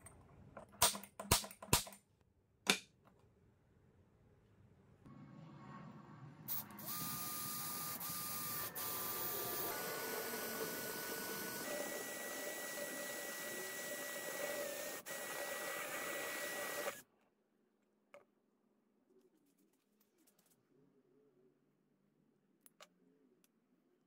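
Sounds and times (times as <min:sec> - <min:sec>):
drill grinding into metal: 0:06.5 - 0:17.0.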